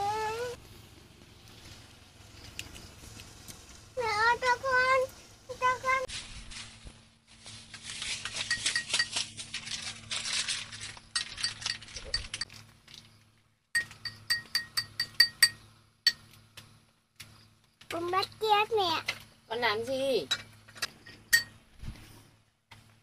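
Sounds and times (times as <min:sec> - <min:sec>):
small objects clinking in container: 0:07.6 - 0:13.2.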